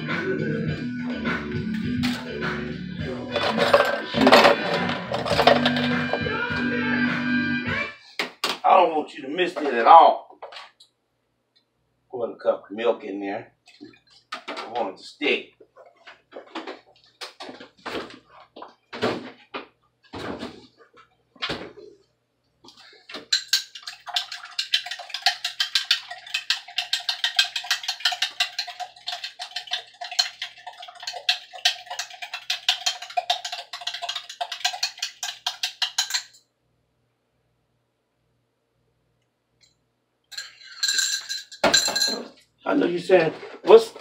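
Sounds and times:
fork clinking against glass: 23.3s - 28.7s, 32.7s - 36.4s, 40.3s - 42.4s.

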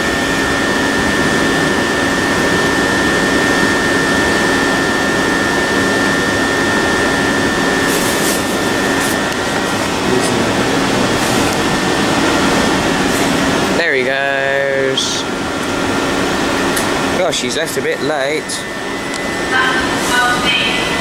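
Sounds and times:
train equipment whirring: 0.0s - 21.0s.

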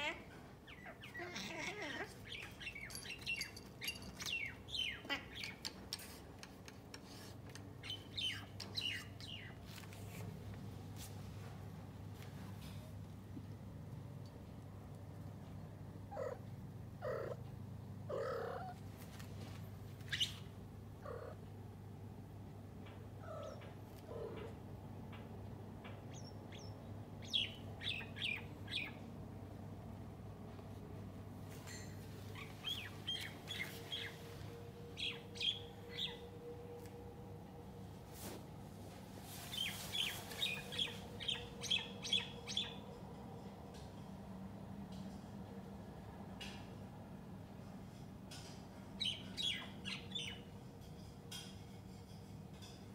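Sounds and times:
cats chirping and trilling: 0.0s - 10.4s, 15.9s - 21.8s, 22.7s - 29.8s, 31.5s - 36.6s, 39.2s - 43.0s
cat chattering: 16.1s - 17.4s, 18.1s - 18.8s, 21.0s - 21.4s.

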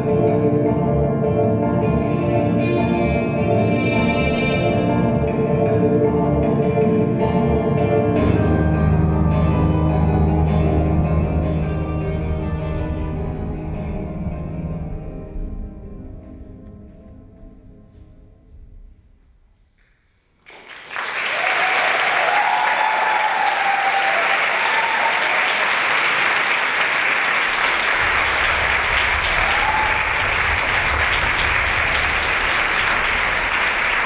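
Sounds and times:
music: 0.0s - 20.4s
audience applause: 20.4s - 34.0s.

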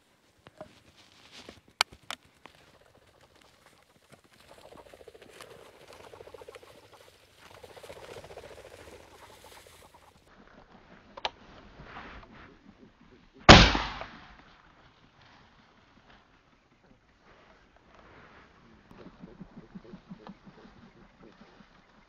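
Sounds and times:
footsteps through dry grass: 0.0s - 11.9s, 14.6s - 22.0s.

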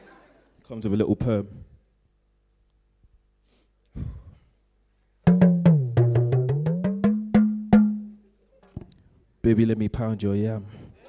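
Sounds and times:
talking drum strikes: 5.3s - 8.2s.

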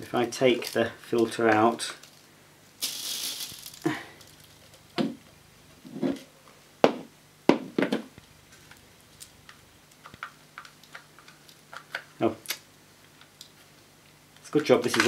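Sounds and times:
dry oats spilling onto tiles: 2.8s - 4.6s.

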